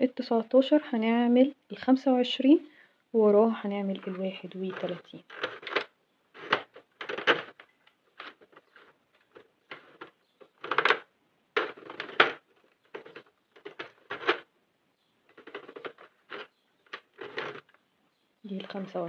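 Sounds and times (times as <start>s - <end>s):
knitting machine needles clattering: 3.9s - 11.0s, 11.6s - 14.4s, 15.3s - 17.8s.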